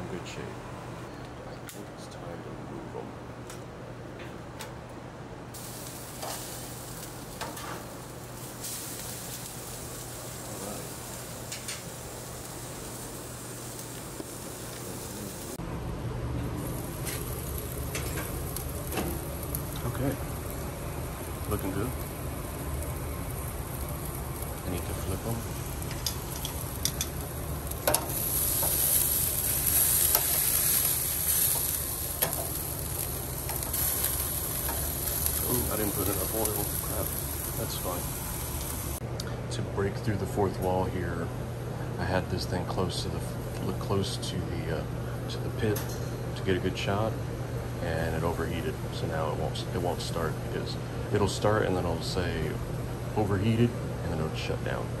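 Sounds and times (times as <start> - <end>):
meat sizzling on a grill: 5.6 - 15.6, 16.6 - 39.0
metal tongs clicking on grate: 25.9 - 27.2.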